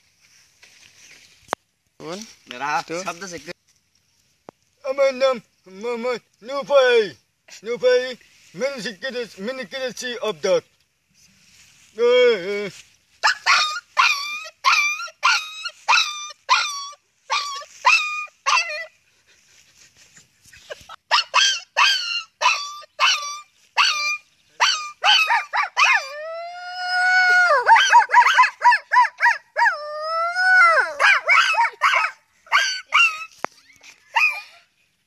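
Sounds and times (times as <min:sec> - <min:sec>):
man imitating dog yelps: 0:13.2 - 0:18.9, 0:20.7 - 0:33.3, 0:34.1 - 0:34.6
man howling: 0:21.2 - 0:31.8.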